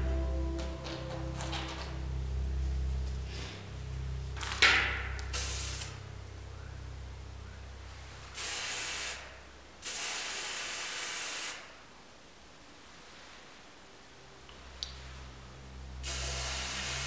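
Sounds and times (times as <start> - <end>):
paint spray hissing: 5.3 - 6.0, 8.4 - 11.8, 16.0 - 17.0.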